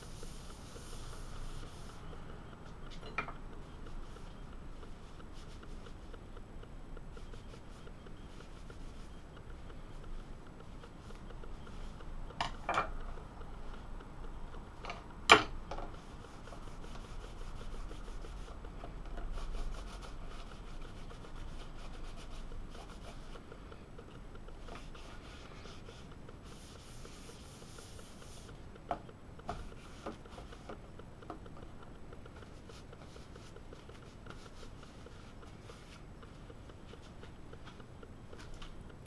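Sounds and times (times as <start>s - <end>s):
paper towel rubbing and wiping: 0.0s - 2.0s, 24.7s - 28.6s.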